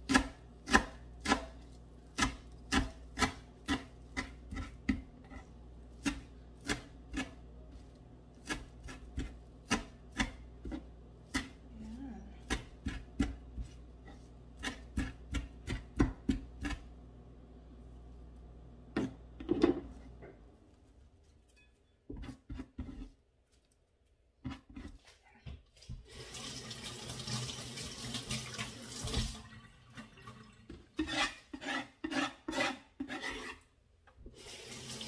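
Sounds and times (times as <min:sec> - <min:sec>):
knife scraping wooden board: 0:22.1 - 0:23.2, 0:31.0 - 0:33.6.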